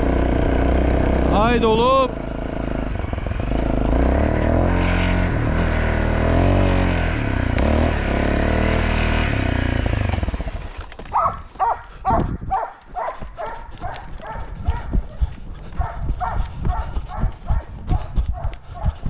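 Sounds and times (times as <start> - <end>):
dirt bike engine revving: 0.0 - 11.3
dog barking: 11.1 - 19.0.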